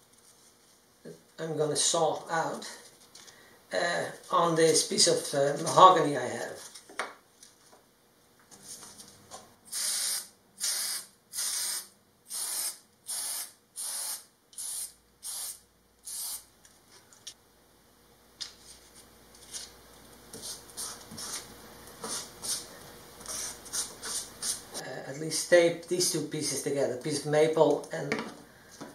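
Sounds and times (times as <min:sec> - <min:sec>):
aerosol spray hissing bursts: 0:09.7 - 0:16.4.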